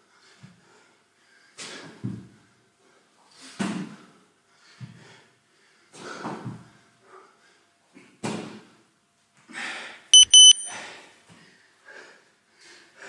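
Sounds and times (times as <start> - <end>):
timer beeps: 10.2 - 10.8.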